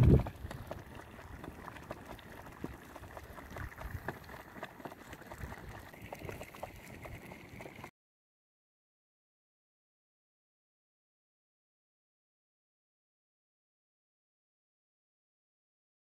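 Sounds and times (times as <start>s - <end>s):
tomato paste bubbling: 0.0s - 7.9s.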